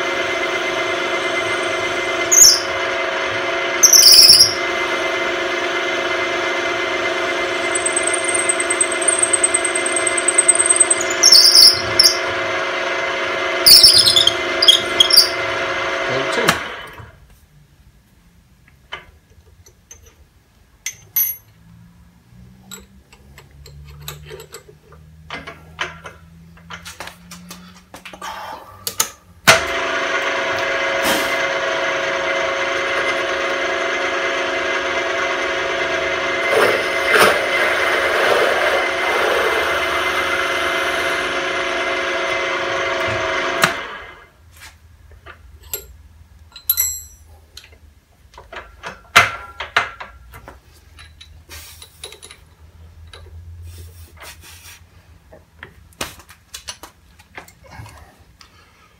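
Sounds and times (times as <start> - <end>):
milling machine motor whine: 0.0 - 17.0, 29.6 - 44.2.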